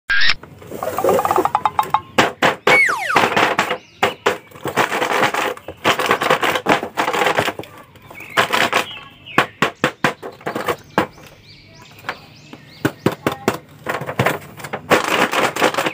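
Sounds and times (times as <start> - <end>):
short falling tone: 2.7 - 3.4
plastic wrap and cardboard crackling: 4.4 - 9.2, 13.4 - 15.9.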